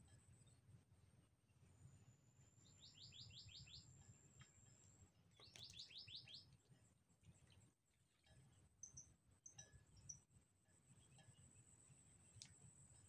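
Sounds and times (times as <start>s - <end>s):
small bird calling: 2.6s - 3.9s, 5.4s - 6.6s.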